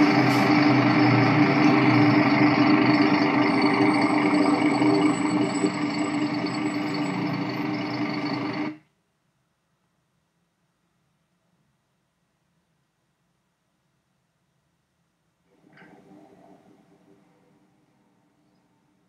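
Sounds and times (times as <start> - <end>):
bus engine running: 0.0 - 8.8
street noise: 0.0 - 8.8.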